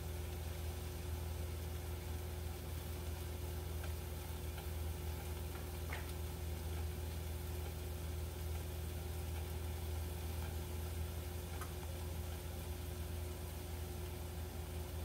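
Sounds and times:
food sizzling in frying pan: 0.0s - 15.0s.

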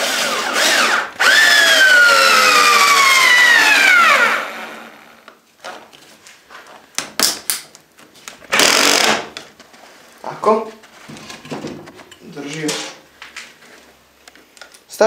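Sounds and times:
drill driving screw into wood: 0.0s - 5.2s, 8.5s - 9.3s.

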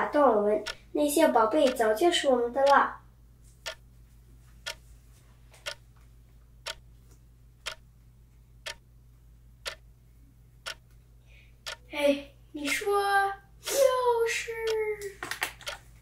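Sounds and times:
faint low hum: 0.0s - 16.0s
clock ticking: 0.6s - 3.0s, 3.6s - 3.9s, 4.6s - 4.8s, 5.6s - 5.8s, 6.6s - 6.9s, 7.6s - 8.0s, 8.6s - 8.9s, 9.6s - 9.9s, 10.6s - 11.0s, 11.6s - 12.0s, 12.6s - 15.0s, 15.6s - 15.9s.

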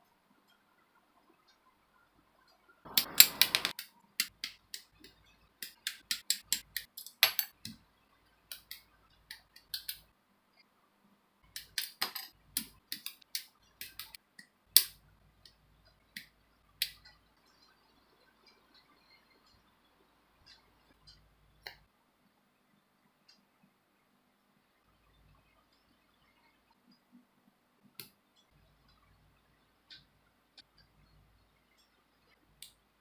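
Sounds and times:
plastic parts clicking and tapping: 2.9s - 7.8s, 8.5s - 10.1s, 11.4s - 17.2s.

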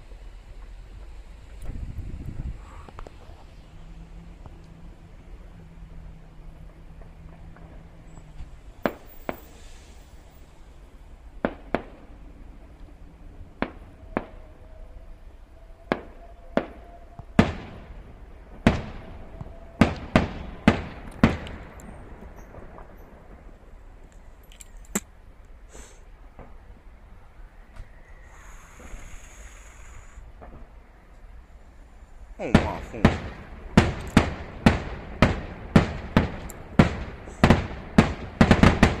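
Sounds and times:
distant firework bangs: 6.6s - 10.1s, 11.4s - 12.8s, 13.5s - 14.6s, 15.8s - 23.7s, 30.2s - 30.9s, 32.4s - 39.0s.

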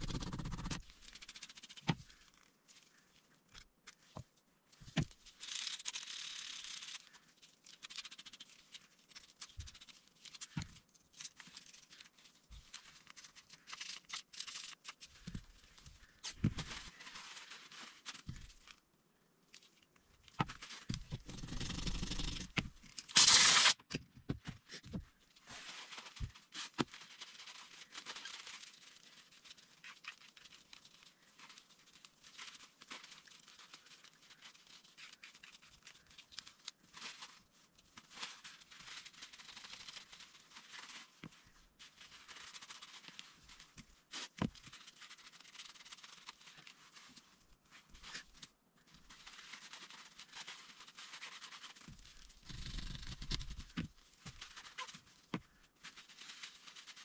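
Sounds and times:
paper towel rubbing metal: 0.0s - 1.8s
loud hiss: 23.2s - 23.8s.

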